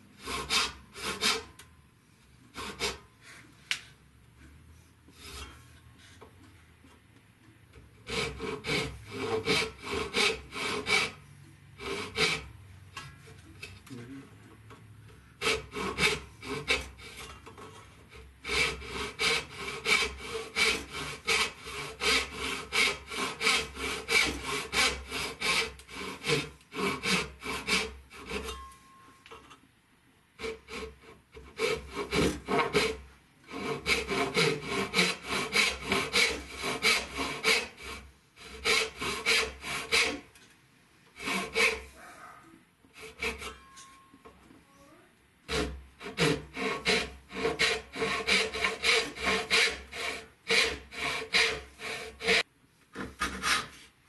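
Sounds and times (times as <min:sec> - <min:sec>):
hand saw cutting wood: 0:00.2 - 0:01.5, 0:02.5 - 0:03.0, 0:07.8 - 0:11.2, 0:11.8 - 0:13.8, 0:15.4 - 0:28.7, 0:30.4 - 0:40.3, 0:41.1 - 0:42.1, 0:42.9 - 0:43.7, 0:45.5 - 0:53.9.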